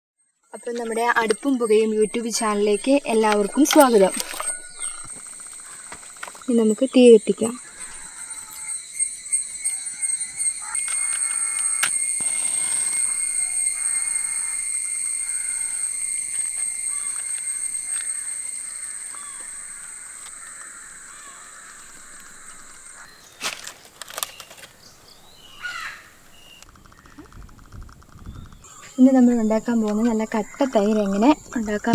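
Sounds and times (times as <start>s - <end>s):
steady high-pitched drone: 0.6s - 23.3s.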